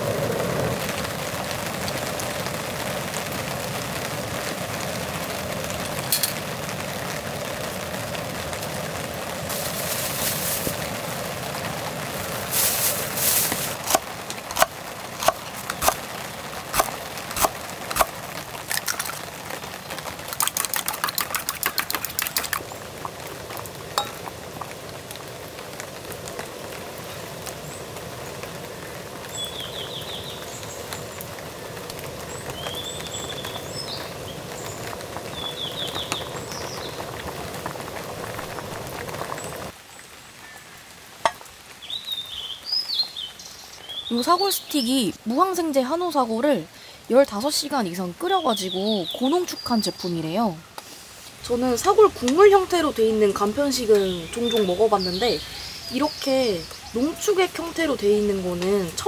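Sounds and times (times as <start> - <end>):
utensils clinking on metal pot: 6.1 - 6.4, 20.4 - 22.6, 24.0 - 24.3
bird chirps: 53.8 - 57.4.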